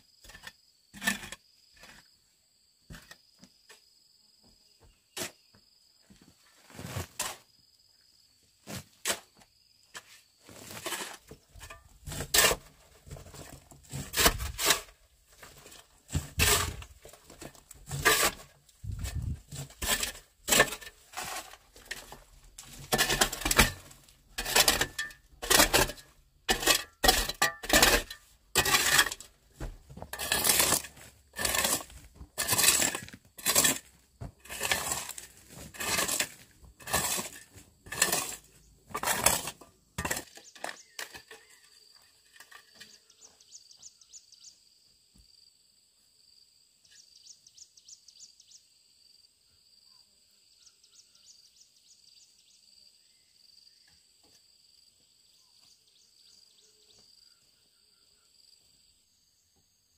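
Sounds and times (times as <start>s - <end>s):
shovel scraping gravelly soil: 0.2s - 2.2s, 6.6s - 7.5s, 8.6s - 9.3s, 10.0s - 43.3s.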